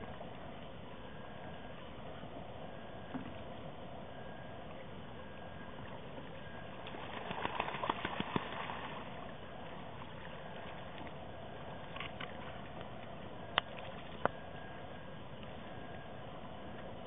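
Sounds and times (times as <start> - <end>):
bird wing-beats and water splashes: 5.8 - 14.3.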